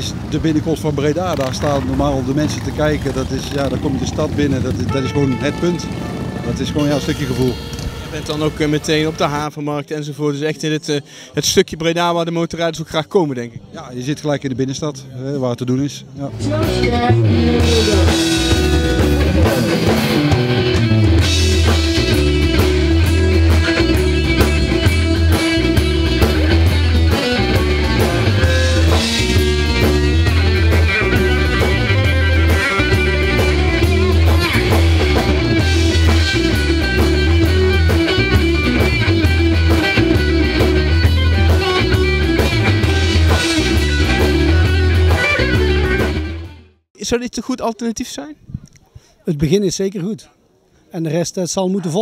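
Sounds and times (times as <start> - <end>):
heavy bass line: 0.0 - 9.3, 16.2 - 46.8
electric guitar: 16.3 - 46.8
drum kit: 16.4 - 46.6.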